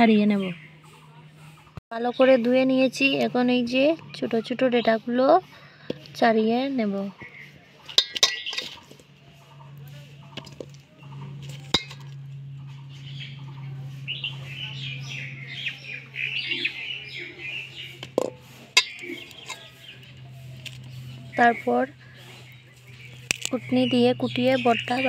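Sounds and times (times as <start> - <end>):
birds chirping: 0.0 - 25.0
low hum: 0.0 - 25.0
fruit clicking in steel bowl: 23.2 - 23.6.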